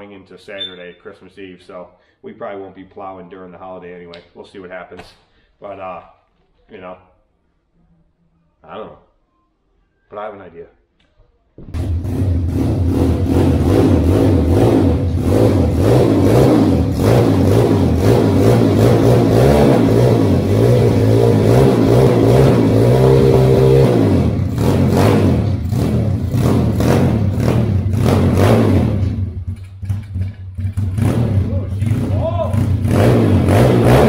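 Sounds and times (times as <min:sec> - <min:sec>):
small motorbike engine revving: 0:11.8 - 0:34.0.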